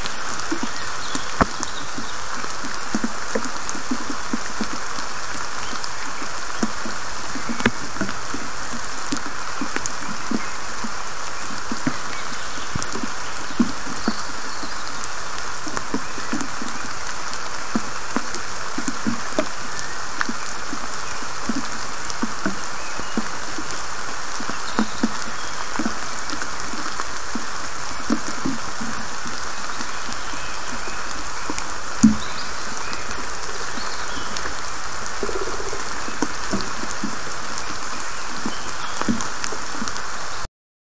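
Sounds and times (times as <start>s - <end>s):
steady rain in a forest: 0.0s - 40.5s
water drops plopping: 31.6s - 39.3s.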